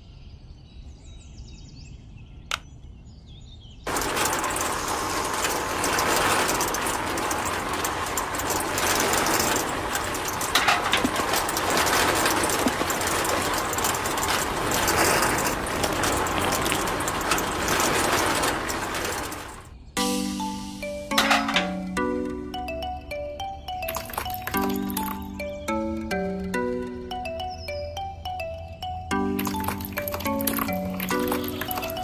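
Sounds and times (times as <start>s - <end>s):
small electric motor rattling whir: 3.9s - 19.7s, 29.4s - 32.0s
gears clicking: 3.9s - 19.8s, 20.4s - 26.6s, 29.1s - 32.0s.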